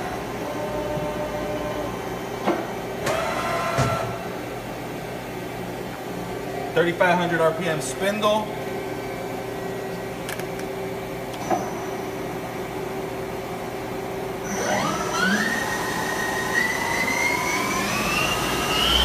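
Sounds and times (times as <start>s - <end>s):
lathe spindle whine rising: 14.4s - 19.0s
machine humming: 14.4s - 19.0s.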